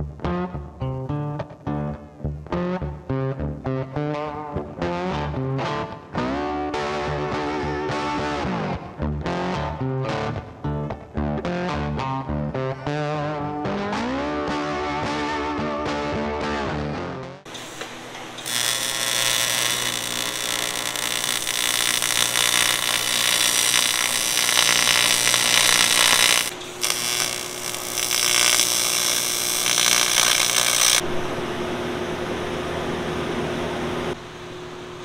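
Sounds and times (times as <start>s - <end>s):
welding arc crackling buzz: 17.5s - 31.1s
welder hum: 17.5s - 31.3s.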